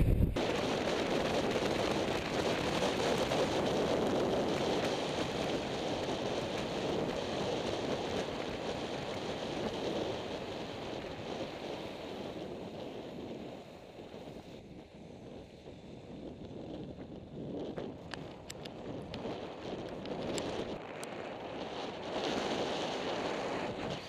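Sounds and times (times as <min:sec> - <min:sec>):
air rushing: 0:00.0 - 0:00.9
skate wheels rolling on asphalt: 0:00.0 - 0:24.0.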